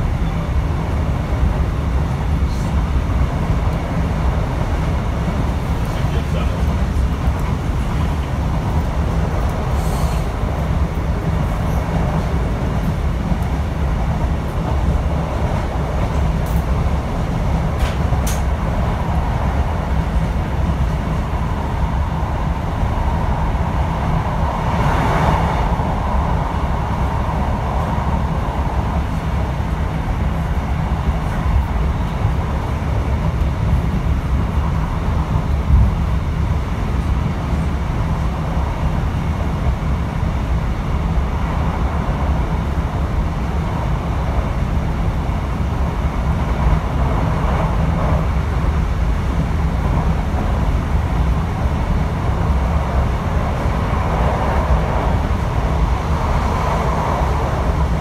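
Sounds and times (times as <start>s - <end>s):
diesel engine low rumble: 0.0s - 58.0s
rushing air: 0.0s - 58.0s
train wheels on rails: 0.0s - 58.0s.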